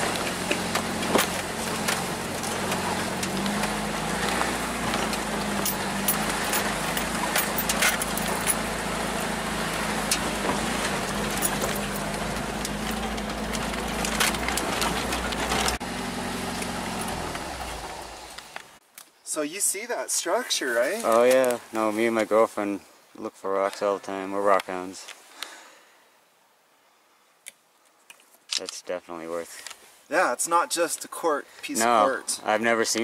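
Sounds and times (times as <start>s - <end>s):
knocks and rattles: 0.0s - 15.8s
truck engine running at low speed: 0.0s - 18.8s.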